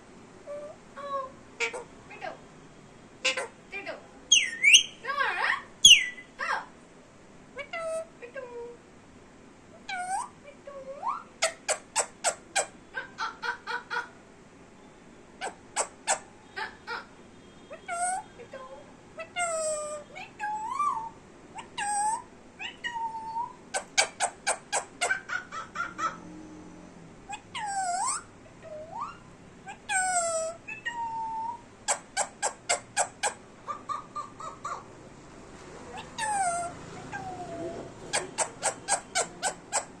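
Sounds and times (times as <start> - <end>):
parrot giving sharp calls: 19.3 - 26.2, 27.3 - 34.9, 35.9 - 40.0.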